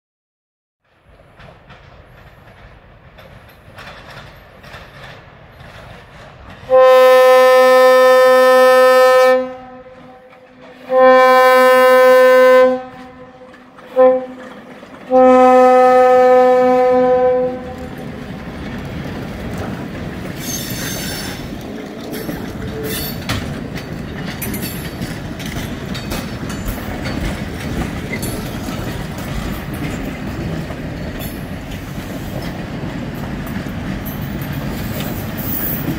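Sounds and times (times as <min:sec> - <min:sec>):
train wheels rumbling and clattering: 0:00.8 - 0:35.9
train air horn blasts: 0:06.7 - 0:14.5, 0:15.1 - 0:17.9.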